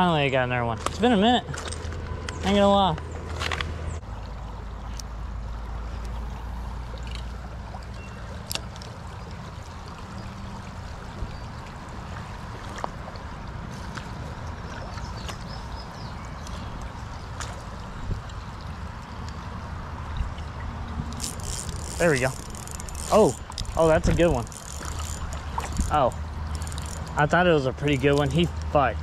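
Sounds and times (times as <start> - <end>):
creek water running: 4.0 - 29.0
faint clicks: 24.4 - 27.2.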